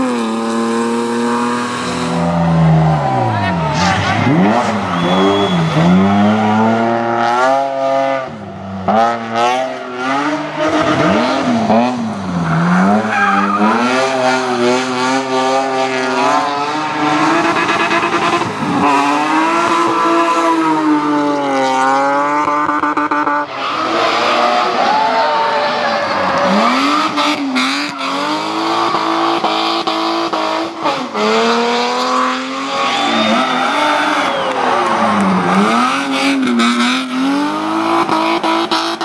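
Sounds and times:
race car engine revving: 0.0 - 39.0
tyres squealing: 12.4 - 14.2.

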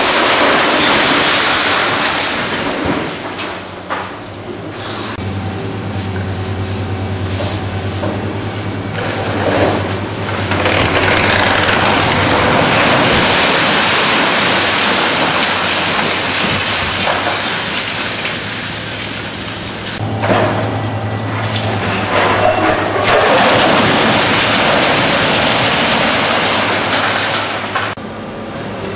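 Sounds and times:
concrete rubble coming down: 0.0 - 4.2, 9.2 - 19.3, 21.4 - 28.0
machine engine humming: 4.4 - 13.6, 17.6 - 28.9.

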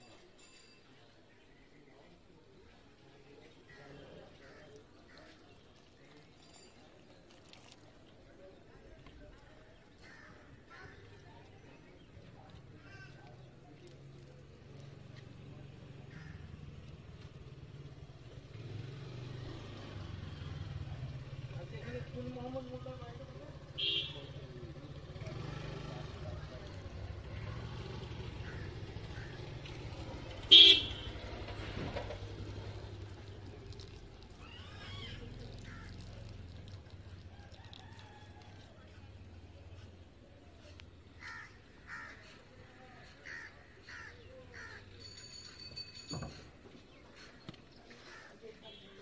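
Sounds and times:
vehicle engine running: 12.2 - 41.4
crow cawing: 16.1 - 16.5, 34.4 - 36.1, 41.1 - 42.4, 43.2 - 44.9, 48.0 - 48.4.

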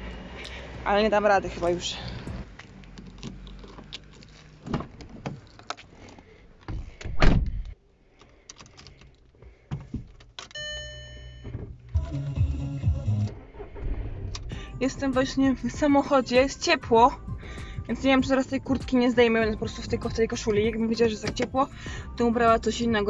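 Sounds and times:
car engine cranking: 0.0 - 6.7, 11.4 - 23.0
car keys rattling: 1.6 - 7.0, 8.1 - 12.4, 14.3 - 21.8
car door shutting: 6.7 - 7.6, 21.2 - 21.6
dashboard warning chime: 10.5 - 13.3.

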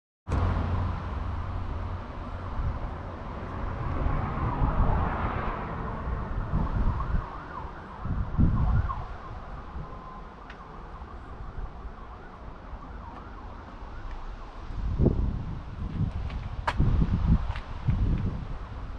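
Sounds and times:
diesel engine rumbling: 0.3 - 7.1.

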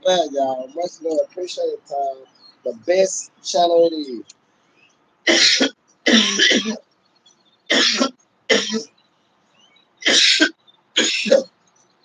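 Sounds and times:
man coughing: 5.3 - 6.8, 7.7 - 8.9, 10.0 - 11.5.

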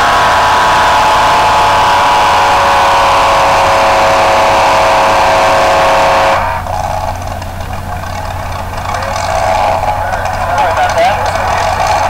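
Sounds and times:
truck engine revving hard: 0.0 - 12.0.

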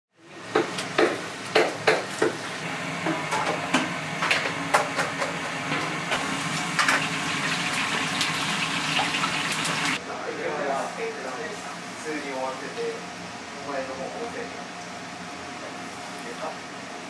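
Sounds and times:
kitchen knocks and clatters: 3.1 - 7.2.

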